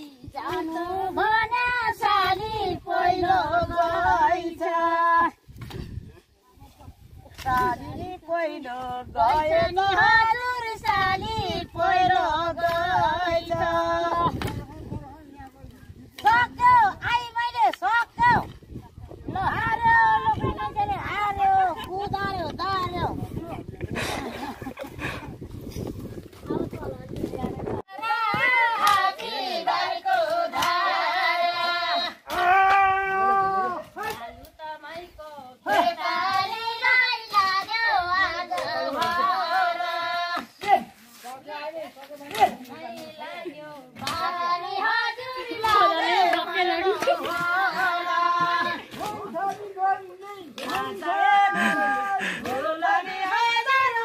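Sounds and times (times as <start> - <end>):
woman singing folk song: 0.0 - 5.5, 7.4 - 15.2, 34.1 - 40.6, 41.4 - 54.0.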